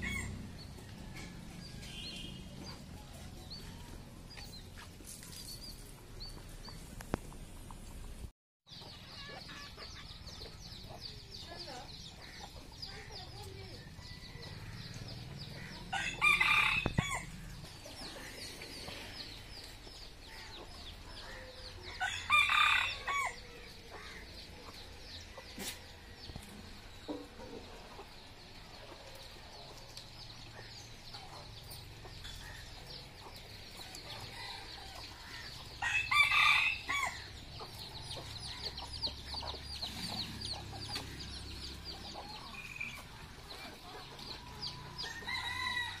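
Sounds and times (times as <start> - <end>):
rooster crowing: 15.9 - 17.3, 22.0 - 23.4, 35.8 - 37.2, 45.0 - 46.0.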